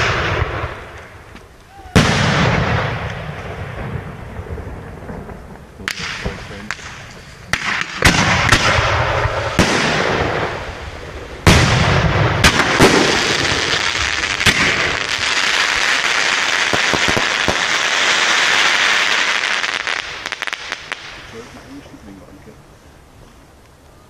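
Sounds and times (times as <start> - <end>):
sharp firework cracks: 0.0 - 21.5
fireworks banging: 0.0 - 22.4
fireworks hissing: 4.9 - 23.4.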